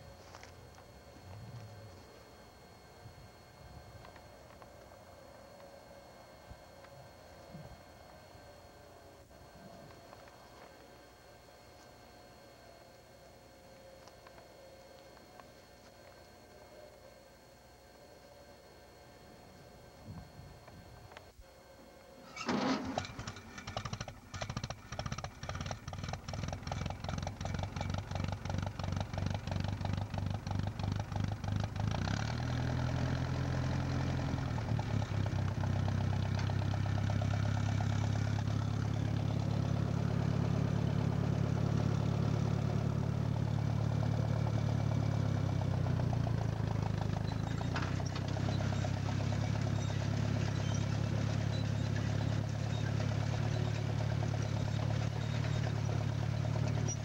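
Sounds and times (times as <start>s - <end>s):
tractor engine running: 0.0s - 12.1s, 22.2s - 57.0s.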